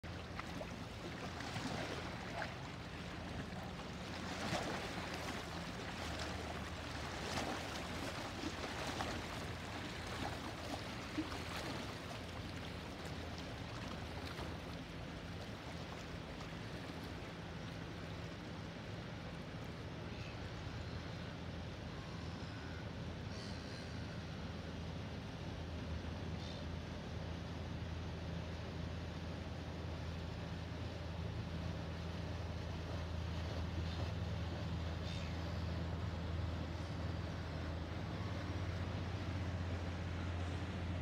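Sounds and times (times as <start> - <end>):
water lapping and splashing: 0.0 - 20.3, 30.1 - 41.0
boat engines droning: 0.0 - 41.0.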